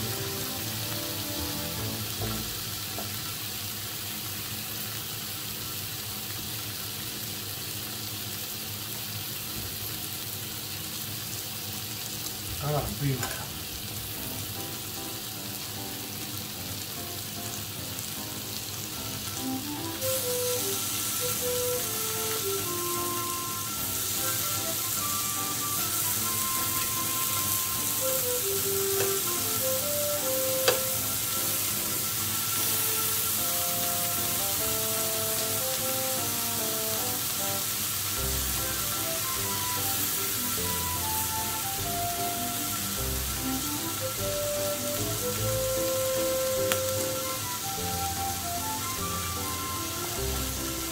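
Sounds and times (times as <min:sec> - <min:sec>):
background music: 0:00.0 - 0:02.8, 0:13.9 - 0:50.9
meat sizzling on grill plate: 0:00.0 - 0:50.9.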